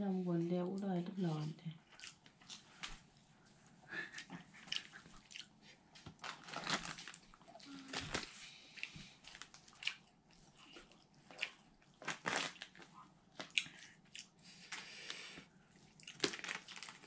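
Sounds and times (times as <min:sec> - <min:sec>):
person chewing and lip smacking: 0:01.8 - 0:03.0, 0:04.0 - 0:06.4, 0:07.3 - 0:17.0.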